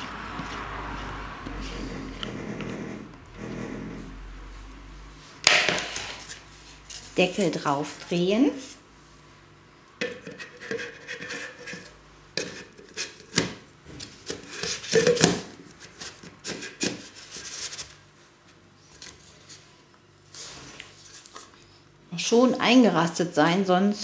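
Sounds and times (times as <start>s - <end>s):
metal lid scraping on tin: 10.2s - 13.4s.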